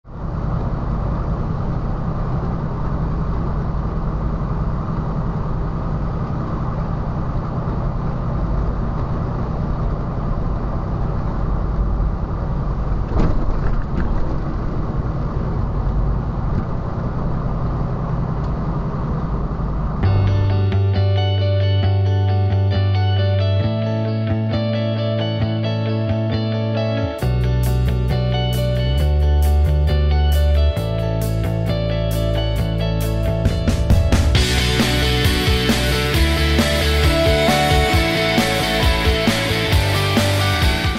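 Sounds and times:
diesel engine running: 0.0s - 40.9s
tyres rumbling on dirt: 0.9s - 20.3s.

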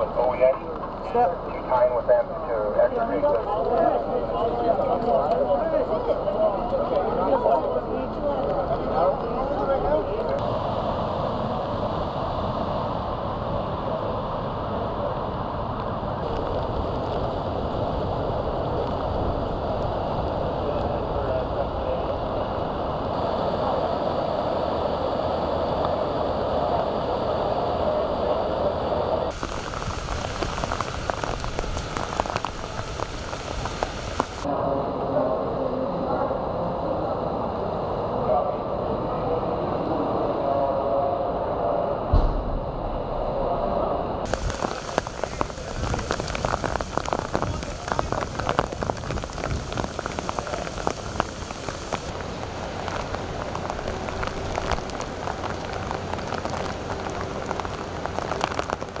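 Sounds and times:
steady rain falling: 8.3s - 34.5s, 44.2s - 59.0s
raindrop ticks: 16.2s - 17.6s, 18.6s - 20.9s, 29.3s - 34.5s, 44.3s - 59.0s
dull low rumble: 40.5s - 59.0s.

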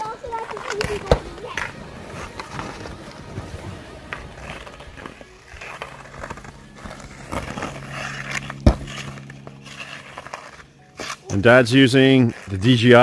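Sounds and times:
hockey stick tapping puck: 0.0s - 2.8s
ice skates scraping: 0.0s - 13.0s
sharp crack: 0.4s - 11.4s
steady low hum: 0.5s - 13.0s.

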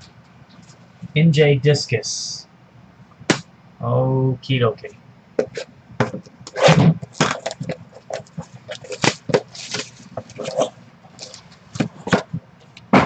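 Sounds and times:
hands handling card boxes: 5.4s - 13.0s.

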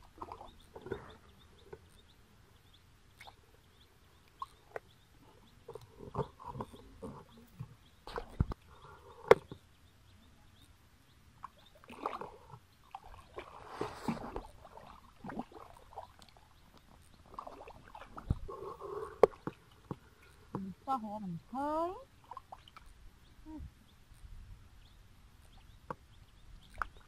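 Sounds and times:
sloshing through muddy water: 0.0s - 1.3s, 11.4s - 20.1s, 22.1s - 22.8s.

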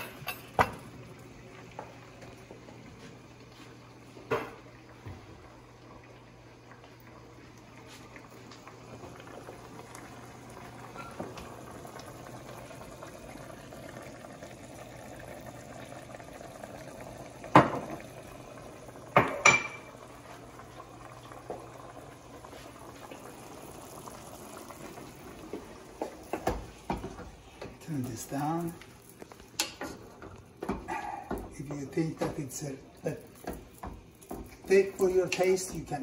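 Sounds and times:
stew bubbling in a pot: 0.0s - 36.0s
cookware knock: 19.2s - 19.8s.

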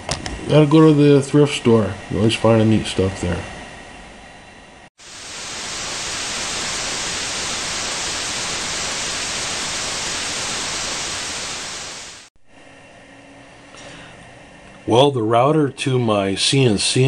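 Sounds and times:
tv static hiss: 5.0s - 12.3s.

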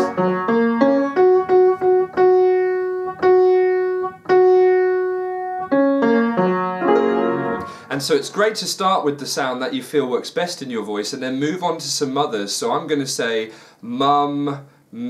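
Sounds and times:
upright piano notes: 0.0s - 8.6s.

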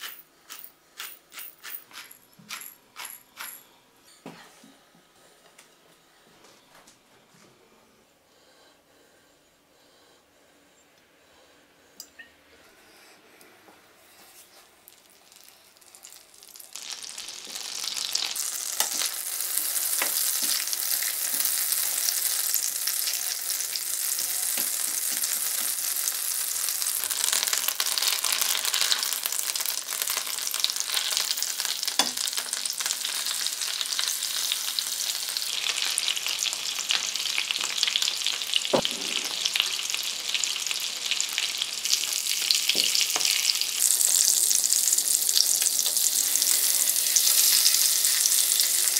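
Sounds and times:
fish frying with steady sizzle: 14.6s - 48.9s
butter sizzling in oil: 14.8s - 48.9s.

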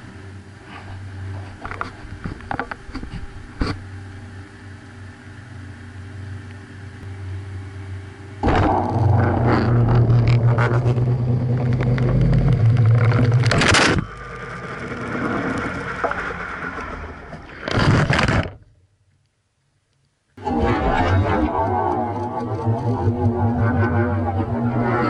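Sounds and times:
washing machine motor hum: 0.0s - 17.6s.

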